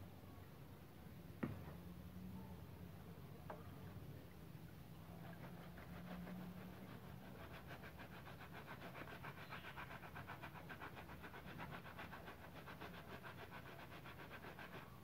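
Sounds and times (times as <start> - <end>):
scrub brush scrubbing wet surface: 5.1 - 15.0.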